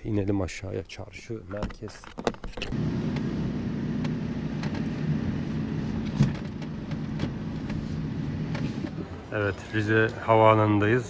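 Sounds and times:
car engine and road drone: 2.4 - 11.0.

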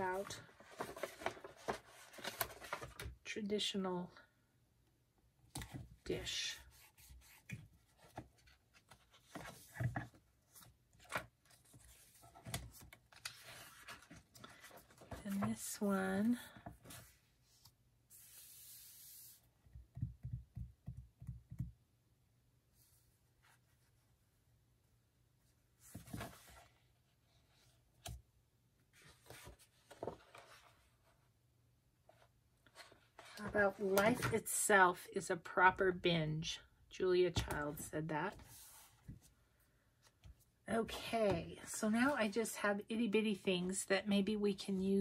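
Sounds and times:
paper rustling: 0.0 - 3.1, 29.0 - 30.9.

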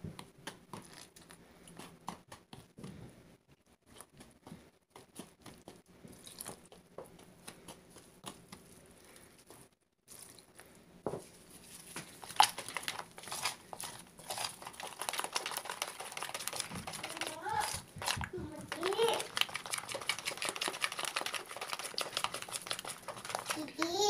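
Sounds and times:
plastic gloves crinkling: 6.1 - 24.0.

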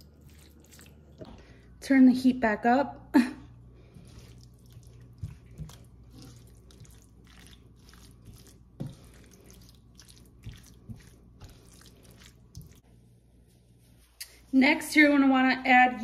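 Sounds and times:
sauce bubbling in a pan: 4.4 - 12.9.

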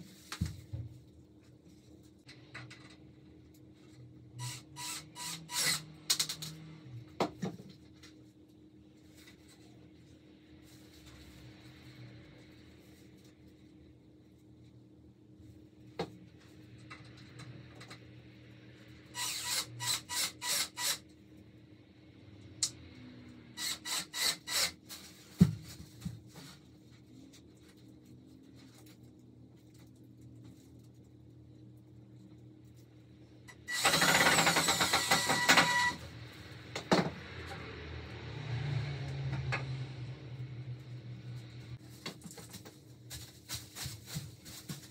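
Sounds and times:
cordless drill driving screws: 4.4 - 5.9, 19.2 - 21.0, 33.7 - 36.0.

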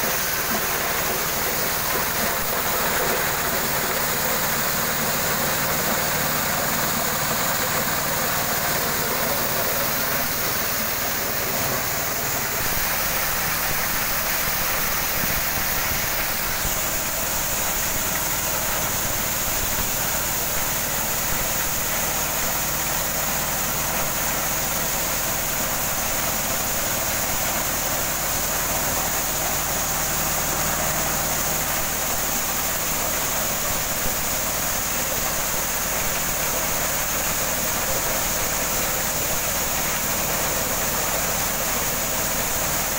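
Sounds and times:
diesel engine running: 0.0 - 21.2.

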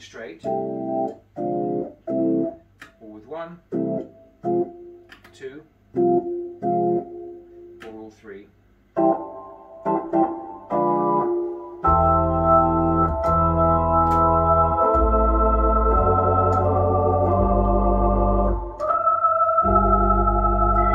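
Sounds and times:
organ chords: 0.4 - 3.0, 3.6 - 5.2, 5.9 - 8.0, 8.9 - 20.9
deep bass notes: 10.0 - 19.0, 19.6 - 20.9.

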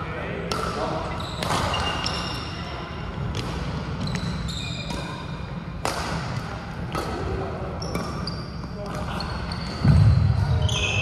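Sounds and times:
sneakers squeaking on court: 0.5 - 5.4, 7.8 - 11.0
racket striking shuttlecock: 5.8 - 7.2.

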